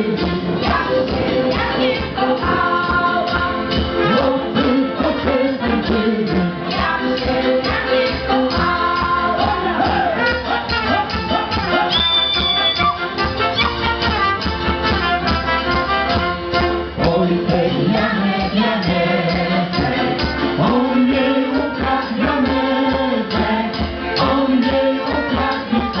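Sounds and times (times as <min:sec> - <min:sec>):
voices singing along: 0:00.0 - 0:12.9, 0:17.0 - 0:26.0
folk band playing: 0:00.0 - 0:26.0.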